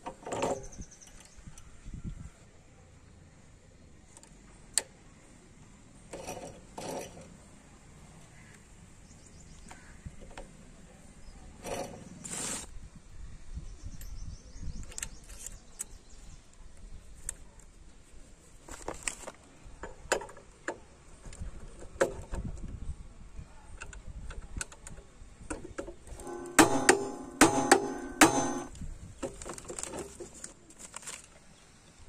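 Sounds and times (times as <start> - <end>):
metallic clicks and knocks: 24.3 - 30.1.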